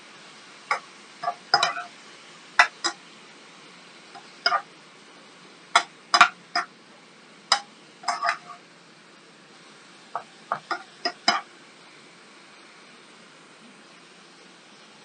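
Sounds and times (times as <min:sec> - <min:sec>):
faint frying hiss: 0:00.0 - 0:15.0
spatula scraping a frying pan: 0:00.7 - 0:01.9, 0:04.2 - 0:04.7, 0:05.8 - 0:06.7, 0:07.5 - 0:08.6, 0:10.2 - 0:11.5.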